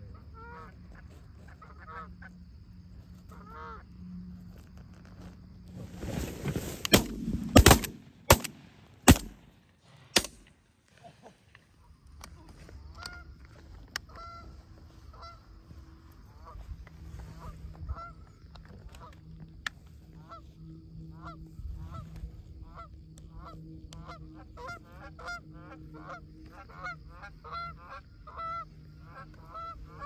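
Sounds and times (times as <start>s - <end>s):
geese honking: 0.1s - 4.0s, 13.9s - 19.2s, 20.2s - 30.0s.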